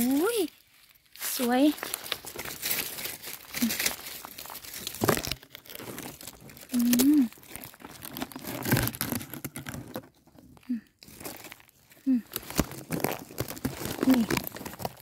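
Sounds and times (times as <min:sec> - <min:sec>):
leaves and gravel rustling: 0:00.0 - 0:15.0
person humming: 0:06.7 - 0:07.3.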